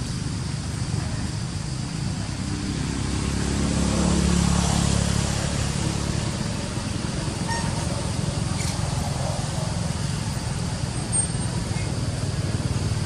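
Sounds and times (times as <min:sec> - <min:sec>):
vehicle engine rumble: 0:00.0 - 0:13.0.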